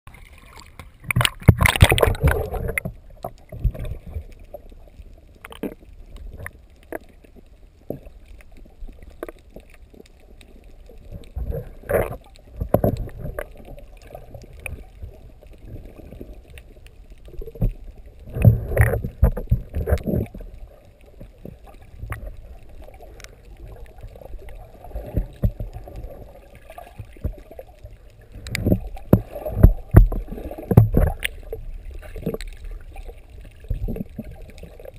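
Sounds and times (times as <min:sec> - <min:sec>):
muffled underwater water sloshing: 0:00.1 - 0:34.9.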